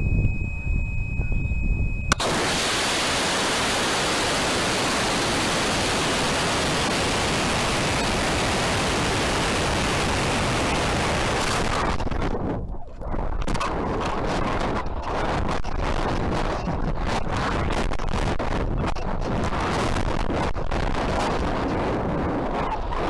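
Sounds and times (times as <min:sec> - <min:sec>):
rocket motor ignition crack: 0:02.1 - 0:09.2.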